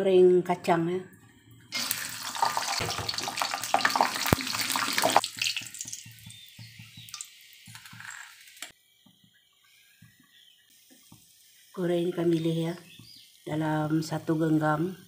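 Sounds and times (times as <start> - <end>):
peanuts sizzling in hot oil: 1.7 - 8.8.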